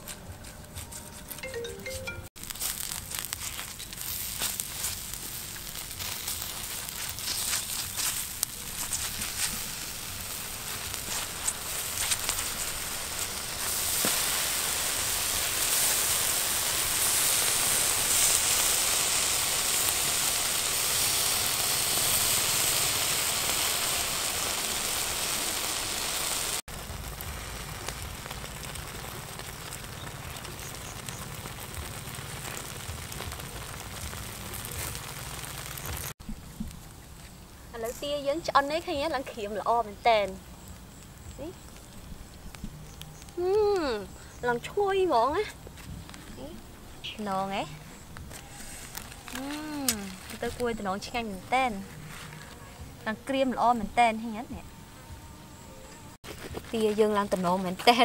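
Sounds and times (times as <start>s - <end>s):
coals crackling and sizzling: 0.0s - 58.0s.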